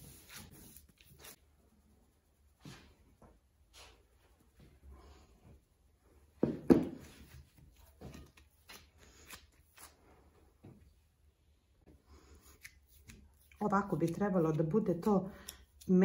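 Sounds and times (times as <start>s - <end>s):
dough thudding on wooden worktop: 6.4s - 7.1s.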